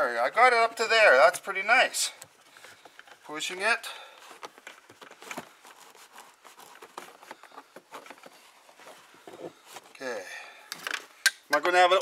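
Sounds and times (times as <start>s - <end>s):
faint rustling: 2.0s - 10.4s.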